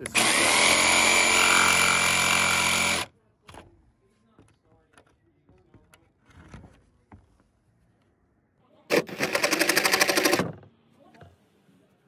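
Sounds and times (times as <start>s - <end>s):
jigsaw cutting wood: 0.0s - 3.1s, 8.9s - 10.4s.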